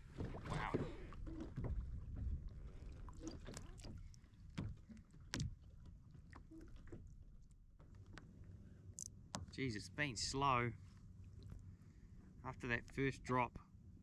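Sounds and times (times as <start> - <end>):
wind rumble on microphone: 0.0 - 5.6
water lapping at kayak hull: 0.0 - 8.9, 10.8 - 12.4.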